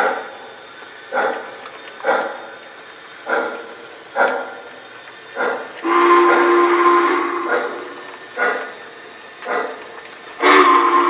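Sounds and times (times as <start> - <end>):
dog barking: 1.1 - 2.6, 3.2 - 4.7, 5.4 - 5.8, 7.5 - 7.8, 8.4 - 8.7, 9.4 - 9.8
model locomotive horn blast: 5.5 - 8.7, 10.4 - 11.0.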